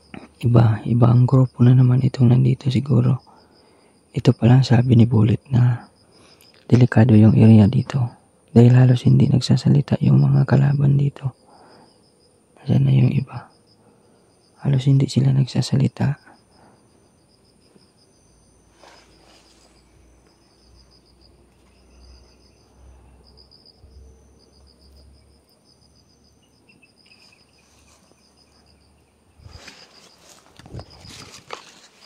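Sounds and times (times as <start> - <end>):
faint high whine: 0.0 - 32.0
insects chirping trills: 0.0 - 32.0
leaves rustling: 18.6 - 20.2, 27.0 - 28.6, 29.4 - 32.0.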